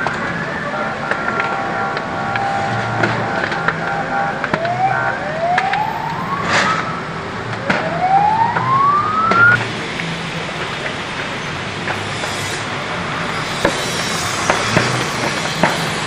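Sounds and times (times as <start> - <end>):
emergency vehicle siren: 0.0 - 9.7.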